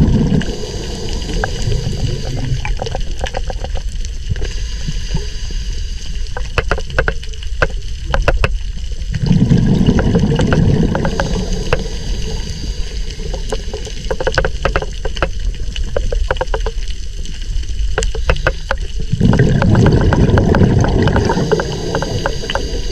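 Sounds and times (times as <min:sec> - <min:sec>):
rush of bubbles: 0:00.0 - 0:03.2, 0:09.1 - 0:14.2, 0:19.0 - 0:22.9
underwater clicks: 0:01.2 - 0:04.5, 0:06.2 - 0:22.9.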